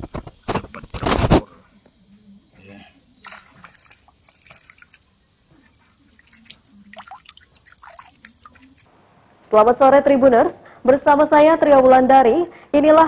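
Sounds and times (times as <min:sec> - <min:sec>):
water drops plinking onto water: 0:03.2 - 0:08.9.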